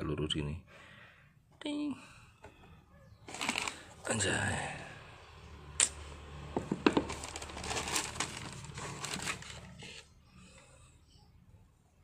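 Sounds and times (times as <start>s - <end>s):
tissue paper rustling: 3.2s - 4.0s, 7.0s - 10.1s.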